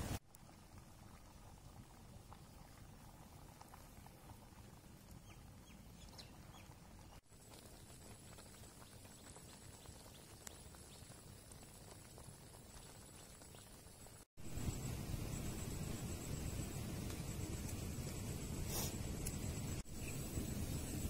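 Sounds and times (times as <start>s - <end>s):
pot simmering with small pops: 0.0s - 20.2s.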